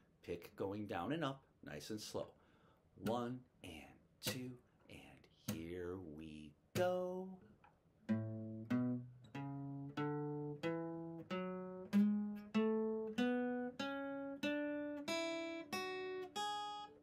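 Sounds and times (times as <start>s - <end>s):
acoustic guitar picking a scale: 3.0s - 3.5s, 4.2s - 4.7s, 5.4s - 17.0s.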